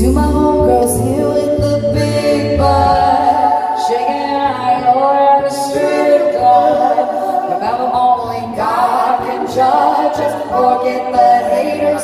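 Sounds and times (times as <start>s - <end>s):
plucked upright bass: 0.0s - 4.0s
singers in vocal harmony: 0.0s - 12.0s.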